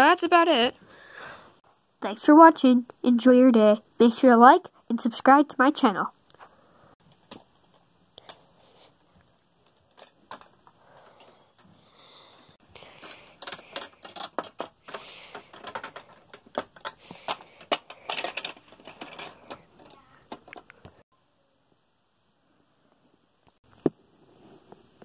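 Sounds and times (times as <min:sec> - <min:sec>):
plastic toy clicking and rattling: 0:09.6 - 0:11.7, 0:12.8 - 0:20.9.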